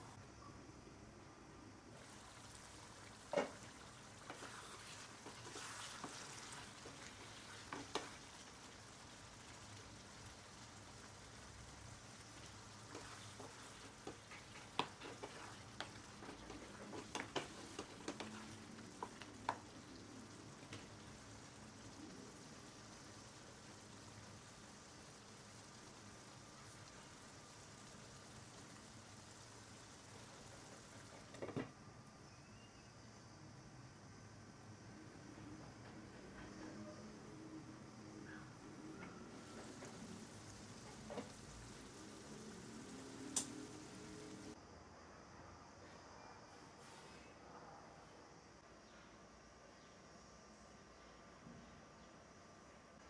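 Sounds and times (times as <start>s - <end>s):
gravy sizzling in a pan: 1.8s - 33.1s, 35.0s - 44.6s
wooden spatula scraping a pan: 3.3s - 8.4s, 12.8s - 19.6s.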